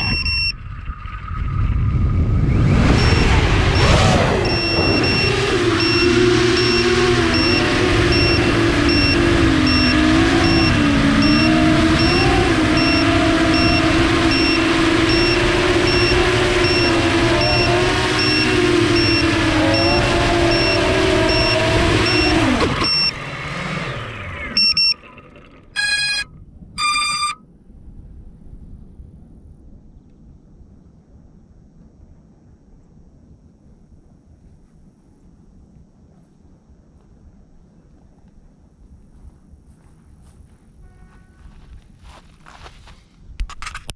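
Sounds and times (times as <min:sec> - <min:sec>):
quadcopter motors whining: 0:00.0 - 0:00.5, 0:02.2 - 0:27.4
electronic beeps: 0:00.0 - 0:00.6, 0:02.7 - 0:23.2, 0:24.5 - 0:25.1, 0:25.8 - 0:27.4.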